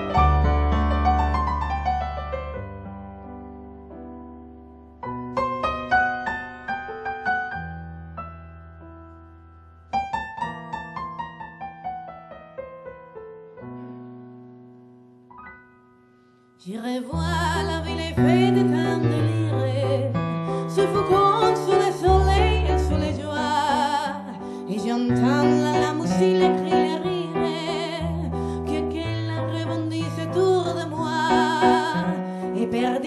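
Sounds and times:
piano playing: 0:00.0 - 0:33.0
woman singing: 0:16.6 - 0:33.0.

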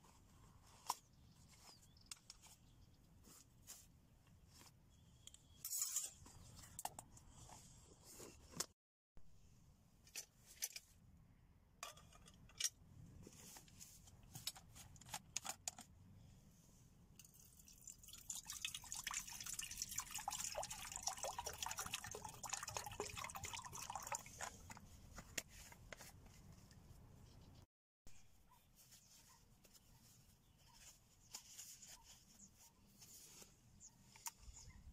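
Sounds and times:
water pouring into metal cup: 0:17.2 - 0:24.8.

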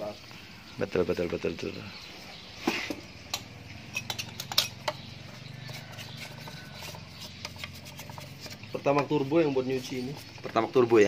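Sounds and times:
wire brush scrubbing metal: 0:03.9 - 0:11.0.

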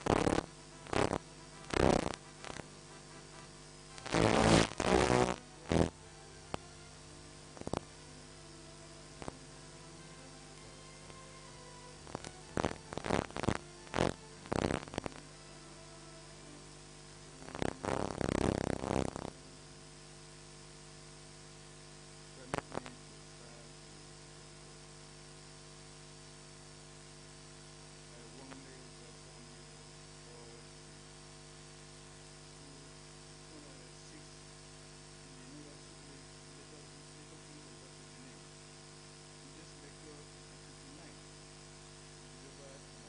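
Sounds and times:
electrical mains hum: 0:00.0 - 0:43.0.

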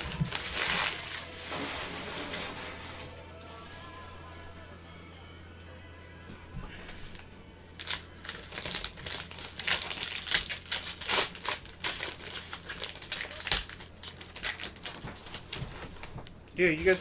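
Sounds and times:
plastic wrapper crinkling: 0:00.0 - 0:03.2, 0:07.8 - 0:17.0.

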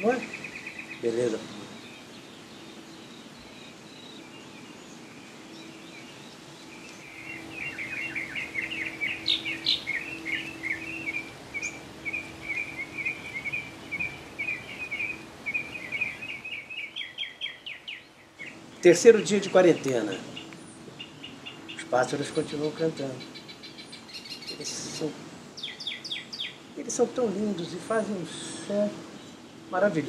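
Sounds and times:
songbirds chirping and trilling: 0:00.0 - 0:30.0.

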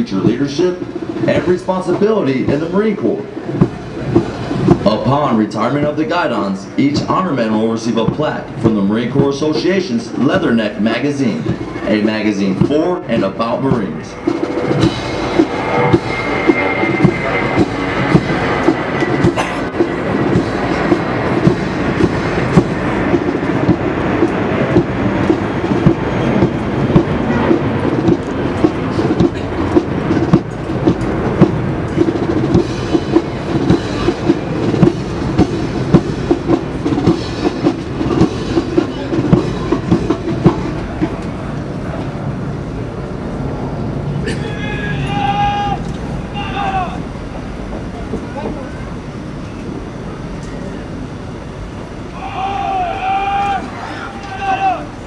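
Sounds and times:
steady drum beat: 0:00.0 - 0:41.6
marching band brass: 0:00.0 - 0:47.1, 0:52.2 - 0:55.0.

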